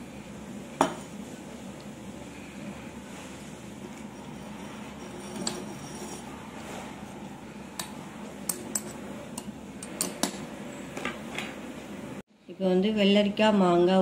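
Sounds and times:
metal spoon clinking glass jar: 0:04.2 - 0:06.3.

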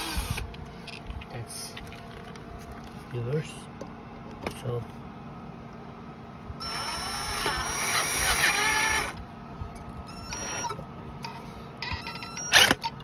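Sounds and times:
cordless drill whirring: 0:00.0 - 0:00.5, 0:06.6 - 0:09.2, 0:10.1 - 0:10.8, 0:11.9 - 0:13.0.

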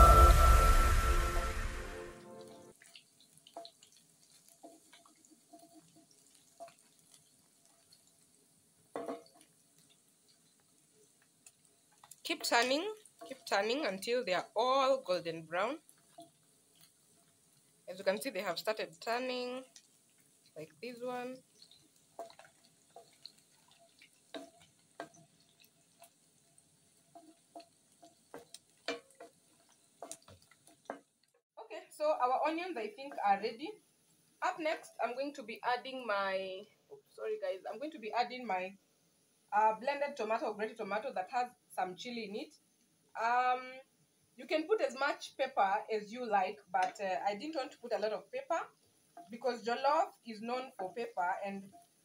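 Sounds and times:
meat frying in oil: 0:00.0 - 0:31.4, 0:32.0 - 0:52.0
wooden spatula knocking on pan: 0:08.9 - 0:09.4, 0:28.3 - 0:29.4.

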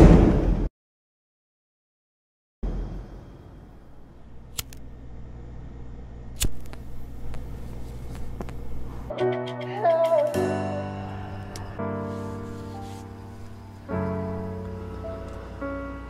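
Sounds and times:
low steady hum: 0:02.6 - 0:09.1
plastic lighter clicking: 0:04.5 - 0:04.8
soft music: 0:09.1 - 0:16.0.

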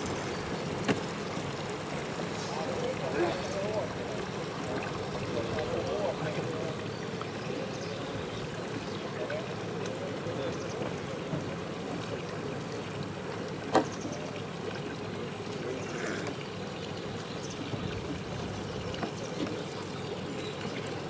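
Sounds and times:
outboard motors idling: 0:00.0 - 0:21.0.

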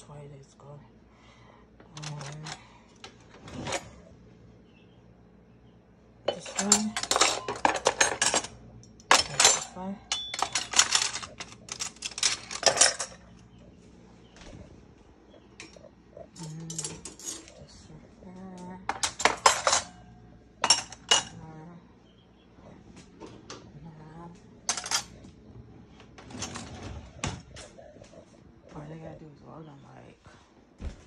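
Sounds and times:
cutlery clinking into tray: 0:06.3 - 0:13.2, 0:18.9 - 0:20.0, 0:20.6 - 0:21.4, 0:24.7 - 0:25.1.

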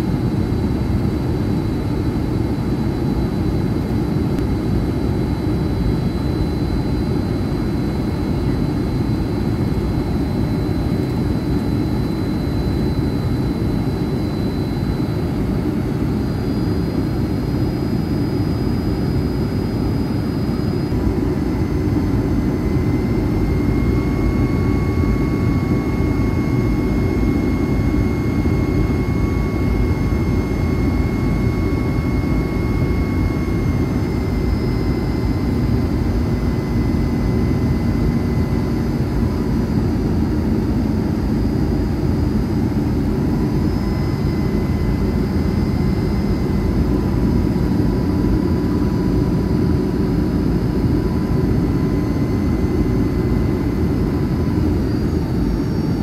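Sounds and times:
faint high whining tones: 0:00.0 - 0:56.0
jet engine roar in cabin: 0:00.0 - 0:56.0.

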